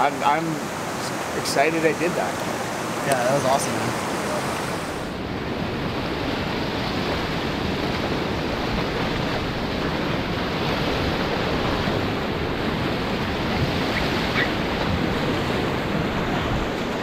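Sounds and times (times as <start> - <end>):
whitewater rapids rushing: 0.0 - 5.2.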